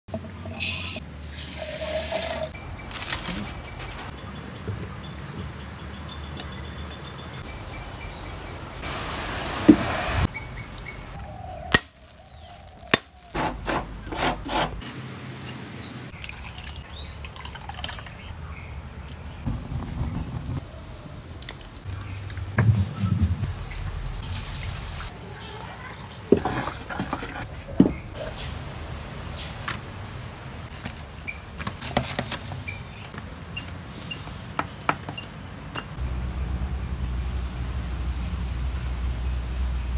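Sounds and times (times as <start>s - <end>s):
hiss: 8.8s - 10.3s
low hum: 21.9s - 25.0s
rice washed by hand in water: 24.2s - 27.4s.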